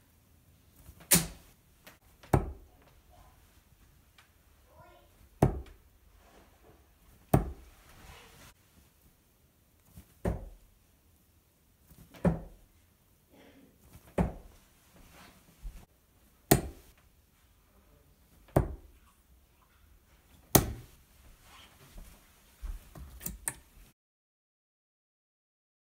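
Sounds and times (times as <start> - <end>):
darts thudding into dartboard: 1.0 - 1.5, 2.2 - 2.7, 5.4 - 5.8, 7.3 - 7.7, 10.2 - 10.6, 12.1 - 12.6, 14.1 - 14.5, 16.5 - 16.9, 18.5 - 18.9, 20.5 - 21.0.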